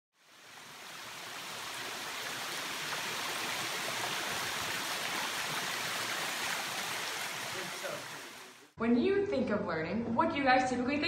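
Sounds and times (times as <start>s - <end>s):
running water rushing: 0.1s - 8.8s.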